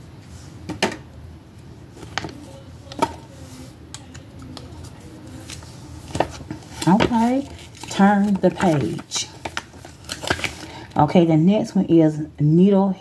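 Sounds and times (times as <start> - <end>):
paper card handling: 2.0 - 10.7.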